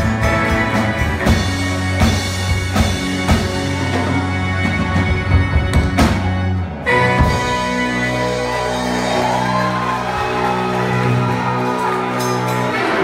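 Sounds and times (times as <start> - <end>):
live band sustained chord: 0.0 - 13.0.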